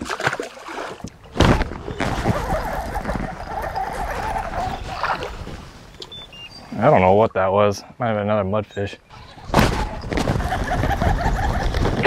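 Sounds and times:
fish splashing: 0.0 - 5.6
rushing water: 0.0 - 6.1.

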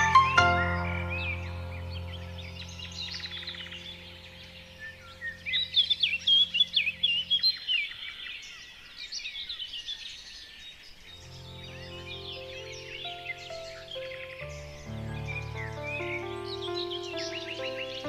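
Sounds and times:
soft musical drone: 0.0 - 7.6
birds chirping and warbling: 0.0 - 18.0.

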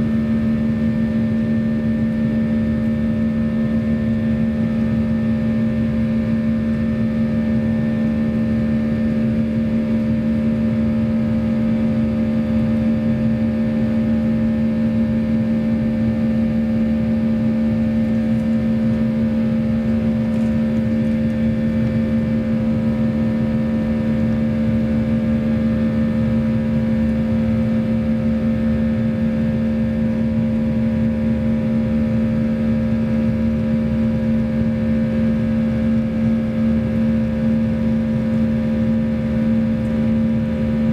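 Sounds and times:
jet engines droning: 0.0 - 40.9.

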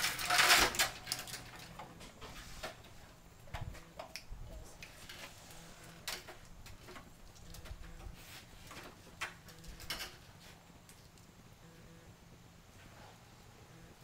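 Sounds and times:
wheelchair clicks and knocks: 0.0 - 3.0, 6.0 - 10.3
faint low hum: 0.0 - 14.0.

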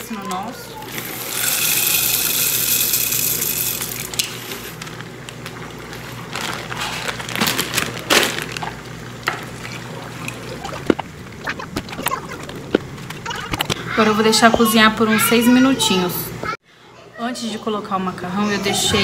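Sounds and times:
plastic bag crinkling: 1.8 - 8.9.

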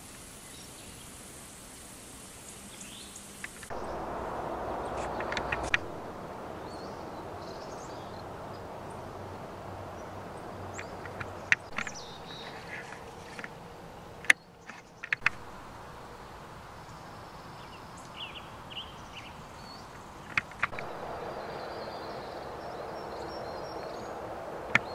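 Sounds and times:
steady background hiss: 0.0 - 24.9
sharp clicks: 14.2 - 15.4, 20.2 - 20.9.

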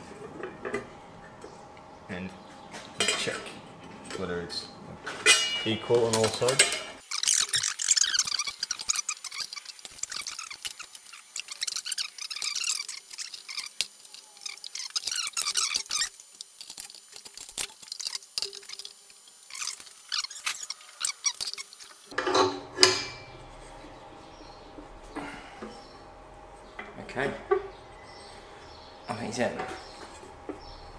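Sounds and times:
hand tools clicking on steel: 6.1 - 18.6
high squeaks: 7.0 - 16.2, 19.5 - 22.1.

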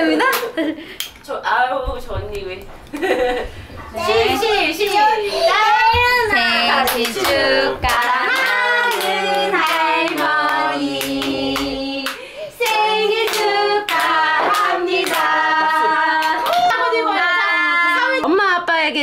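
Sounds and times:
hand claps: 0.2 - 1.2, 6.9 - 16.8.

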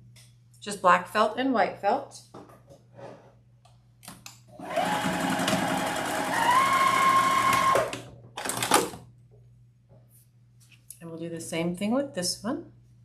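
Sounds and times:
sewing machine stitching: 4.6 - 9.0.

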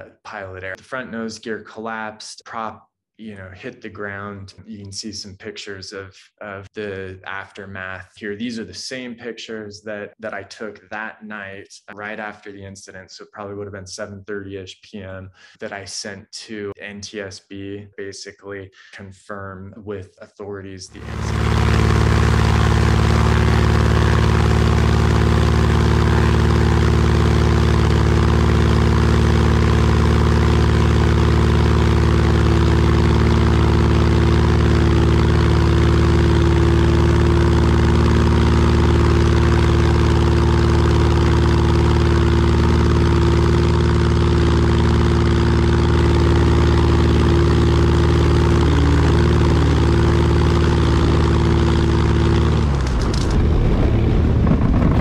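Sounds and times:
plane engine and propeller: 21.0 - 55.0.

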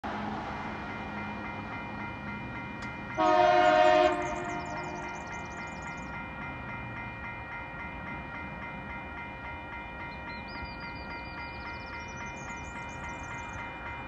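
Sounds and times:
train horn: 3.2 - 5.2.

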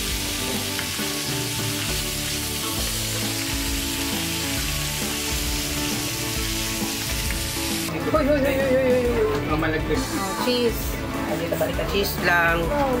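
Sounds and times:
meat sizzling on a grill pan: 0.0 - 7.9
background music: 0.0 - 13.0.

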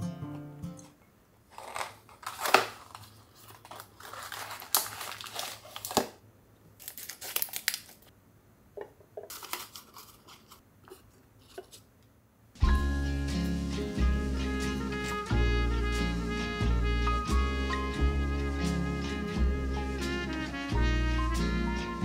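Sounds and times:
plastic bag crinkling: 1.5 - 6.2, 6.8 - 8.1, 9.3 - 10.6.

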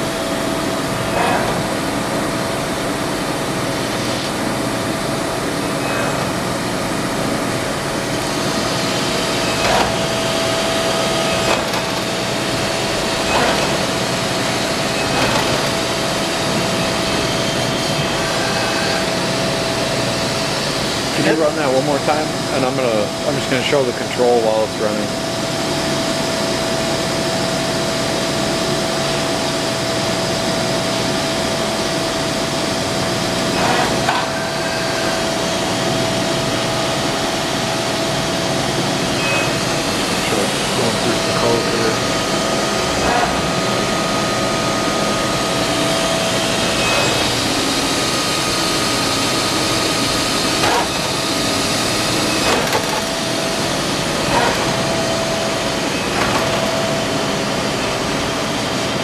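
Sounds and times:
higher machine whine: 0.0 - 59.0
machining center whine: 0.0 - 59.0
short mechanical clunks: 50.6 - 51.1.

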